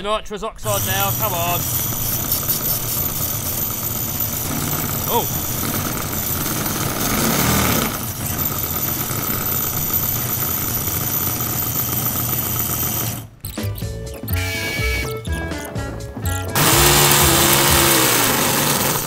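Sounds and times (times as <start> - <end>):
model engine buzzing: 0.6 - 13.3, 16.5 - 19.0
background music: 13.4 - 19.0.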